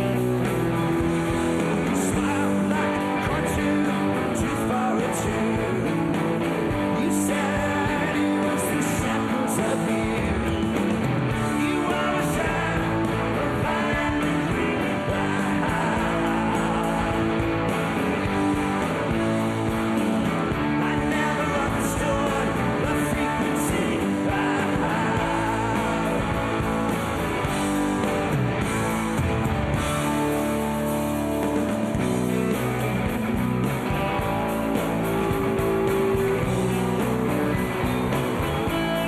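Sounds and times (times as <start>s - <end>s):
bass guitar: 0.0s - 39.0s
electric guitar: 0.0s - 39.0s
person singing: 1.5s - 17.5s, 20.5s - 27.0s.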